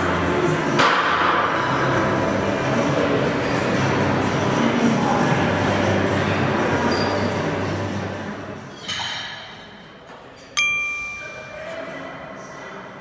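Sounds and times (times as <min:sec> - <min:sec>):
background noise: 0:00.0 - 0:13.0
metal clang ringing bell-like: 0:10.5 - 0:12.4.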